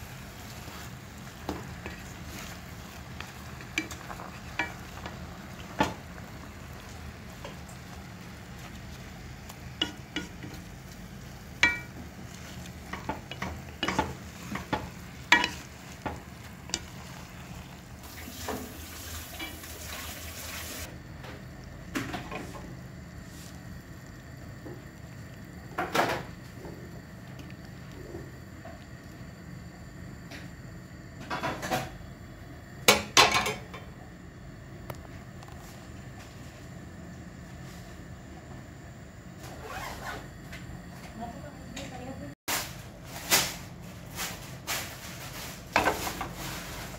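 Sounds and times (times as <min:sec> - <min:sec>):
wooden spoon scraping a pot: 0:00.0 - 0:06.1, 0:06.7 - 0:18.7
steady low hum: 0:00.0 - 0:18.7, 0:20.8 - 0:46.9.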